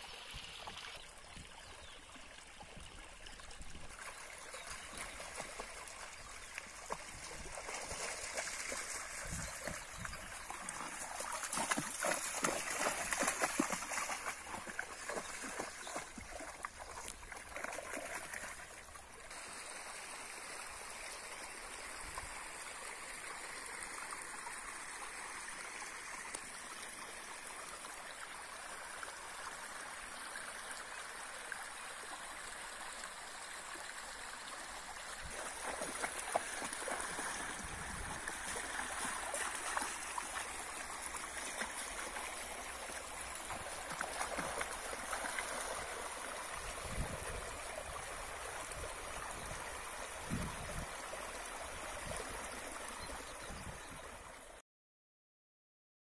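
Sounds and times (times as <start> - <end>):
stream trickling over rocks: 0.0 - 54.6
dog splashing through water: 10.5 - 18.6, 35.3 - 46.3.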